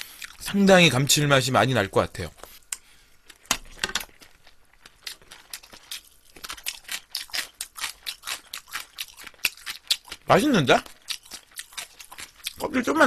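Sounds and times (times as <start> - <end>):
shrimp shells crunching when chewed: 4.0 - 12.8.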